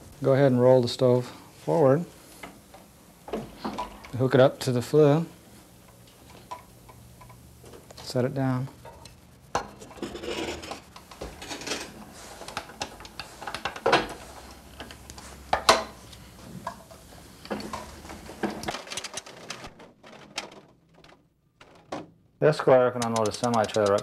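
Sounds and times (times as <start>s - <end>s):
metallic clicks and clanks: 22.9s - 24.0s.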